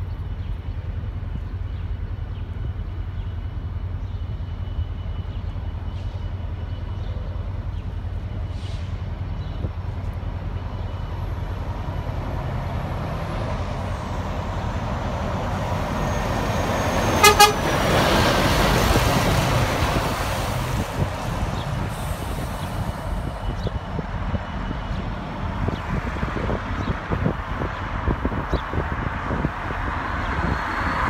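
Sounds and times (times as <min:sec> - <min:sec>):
diesel truck driving past: 0:08.4 - 0:27.7
truck horn toots: 0:17.2 - 0:17.8.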